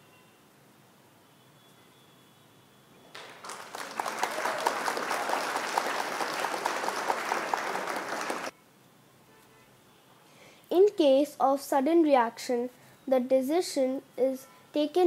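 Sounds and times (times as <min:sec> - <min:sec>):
crowd clapping: 0:03.1 - 0:08.5.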